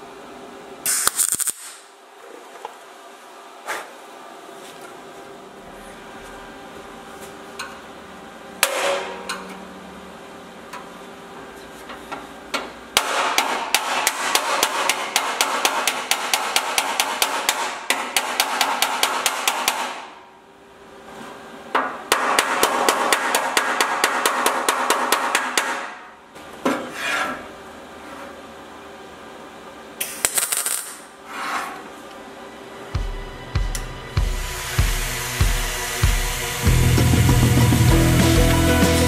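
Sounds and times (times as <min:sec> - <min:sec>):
hammer striking sheet metal: 0:08.6 - 0:09.4, 0:13.0 - 0:20.2, 0:22.1 - 0:26.1.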